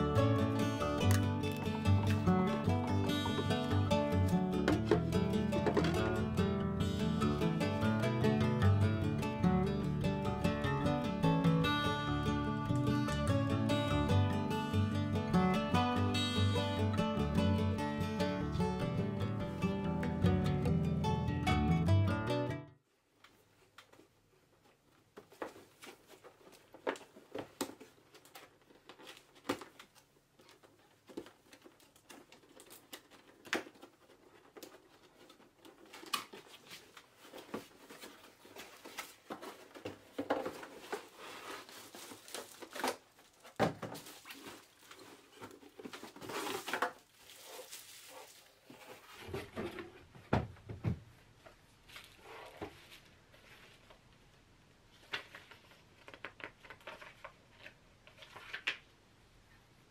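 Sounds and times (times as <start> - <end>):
packaging rustling and crinkling: 25.2 - 49.6.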